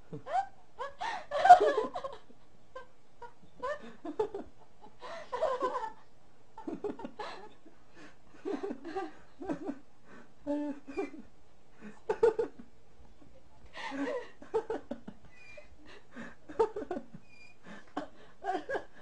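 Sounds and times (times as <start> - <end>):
people giggling and laughing: 0.0 - 6.0, 6.6 - 9.8, 13.8 - 19.0.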